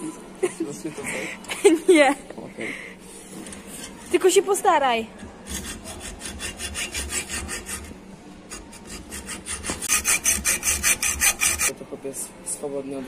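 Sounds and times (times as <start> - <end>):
hacksaw cutting metal tube: 5.2 - 11.7.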